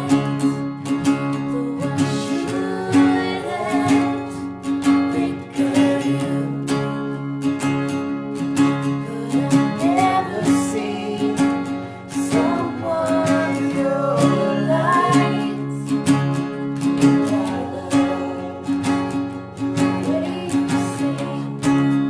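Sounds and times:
acoustic guitars strummed: 0:00.0 - 0:22.0
voices singing folk-rock song: 0:00.0 - 0:22.0.

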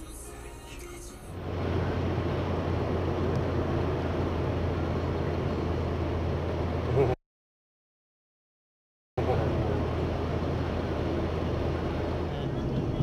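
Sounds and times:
low engine drone: 0:01.2 - 0:07.2, 0:09.2 - 0:13.0
tyre road noise inside car: 0:01.4 - 0:07.2, 0:09.2 - 0:13.0.

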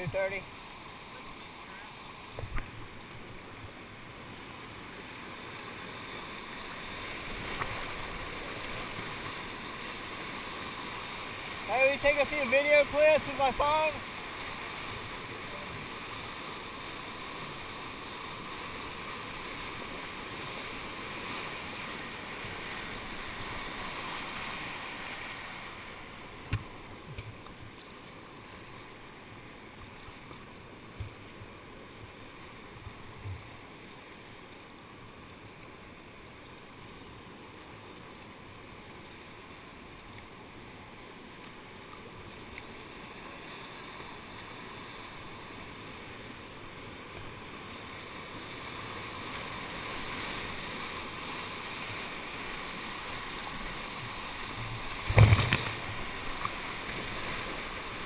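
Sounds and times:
whitewater rushing: 0:00.0 - 0:27.2, 0:42.1 - 0:58.0.

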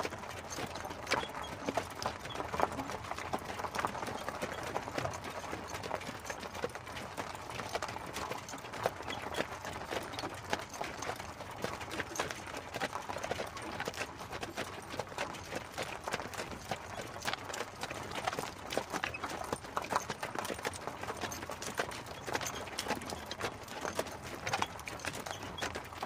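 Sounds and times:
horse hooves clip-clopping: 0:00.0 - 0:26.0.

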